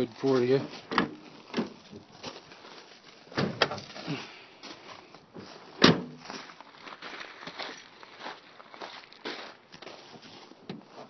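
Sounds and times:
car hood clunk: 0:03.3 - 0:03.8, 0:05.8 - 0:06.2
car hood latch clicks: 0:03.4 - 0:03.8.

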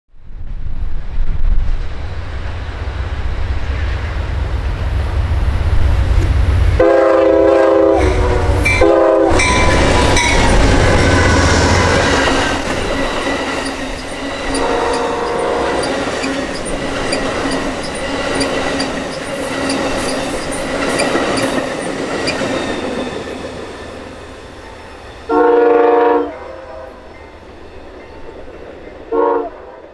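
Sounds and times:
diesel locomotive engine rumble: 0:00.2 - 0:29.9
train wheel clatter: 0:05.6 - 0:25.3
train horn blasts: 0:06.8 - 0:16.3, 0:25.3 - 0:27.1, 0:29.1 - 0:29.9
high wheel squeal: 0:08.6 - 0:25.0.

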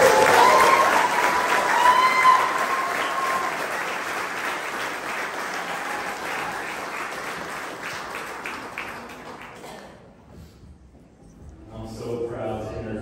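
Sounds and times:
held whoop: 0:00.0 - 0:03.7
crowd applauding and cheering: 0:00.0 - 0:10.0.

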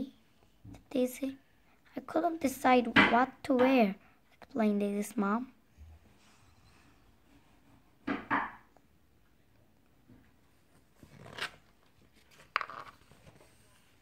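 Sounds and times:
book pages turning: 0:10.6 - 0:14.0.

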